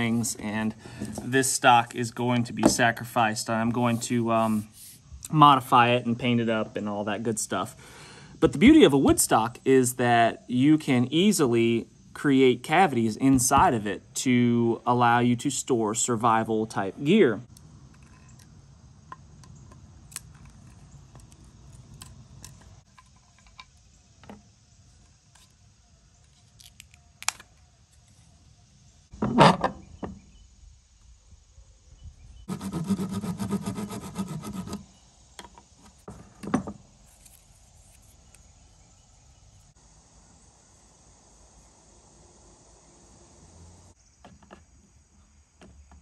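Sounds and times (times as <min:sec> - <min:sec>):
fast file strokes: 0:32.5 - 0:34.8.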